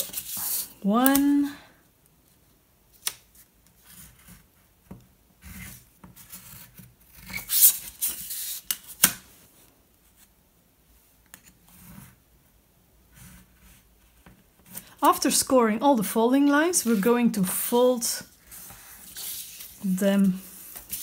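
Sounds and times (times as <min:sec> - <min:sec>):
paper and ruler rustling scrape: 0:00.0 - 0:00.8, 0:16.8 - 0:17.4, 0:18.2 - 0:21.0.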